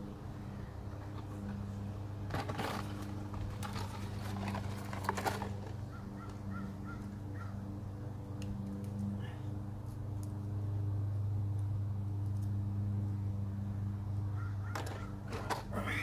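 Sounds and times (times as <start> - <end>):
steady low hum: 0.0 - 16.0
scraping and clicking in concrete: 2.3 - 6.4, 14.7 - 15.8.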